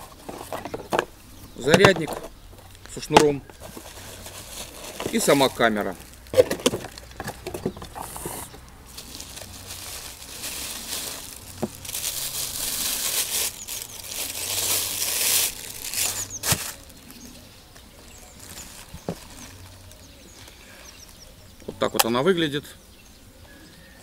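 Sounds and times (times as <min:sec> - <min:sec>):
plastic wrapping crinkling: 0:03.5 - 0:21.2.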